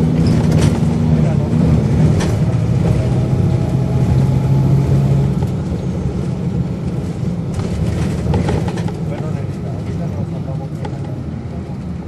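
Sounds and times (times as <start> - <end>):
bus diesel engine running: 0.0 - 12.0.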